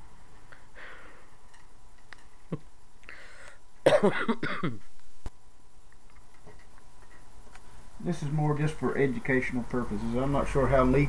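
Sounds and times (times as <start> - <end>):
man coughing: 3.8 - 4.9.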